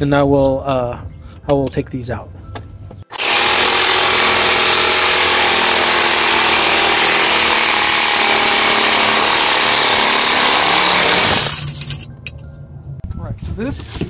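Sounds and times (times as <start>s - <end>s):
reciprocating saw cutting metal: 3.1s - 11.7s.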